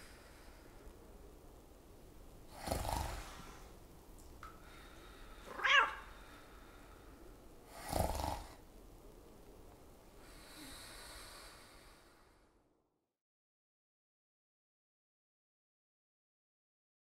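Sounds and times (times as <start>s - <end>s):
deep heavy breathing: 10.2s - 12.6s.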